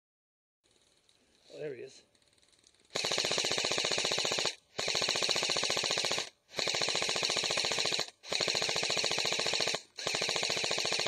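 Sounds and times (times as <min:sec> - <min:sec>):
airsoft rifle firing full-auto: 0:02.9 - 0:11.0.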